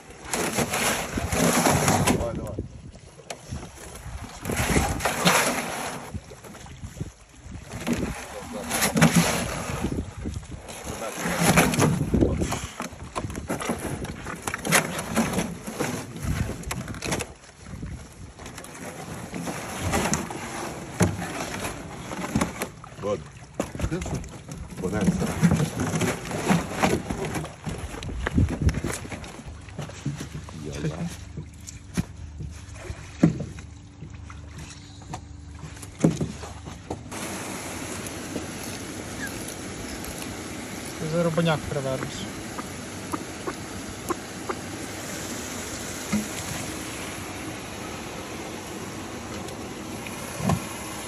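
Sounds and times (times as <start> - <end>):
low steady hum: 0.0 - 51.0
steady outdoor hiss: 35.1 - 51.0.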